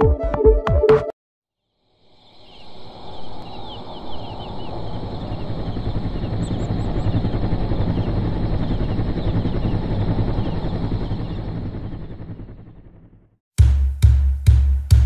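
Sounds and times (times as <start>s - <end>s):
birds chirping: 2.1s - 12.5s
wind buffeting microphone: 2.5s - 12.2s.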